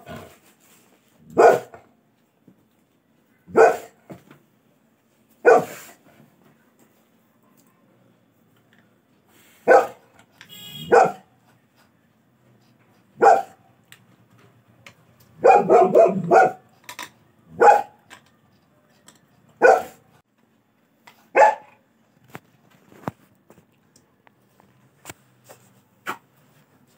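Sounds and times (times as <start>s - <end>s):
dog barking: 1.3s - 1.8s, 3.5s - 4.0s, 5.4s - 6.0s, 9.6s - 10.1s, 10.8s - 11.3s, 13.2s - 13.7s, 15.4s - 16.7s, 17.5s - 18.0s, 19.6s - 20.1s, 21.3s - 21.8s.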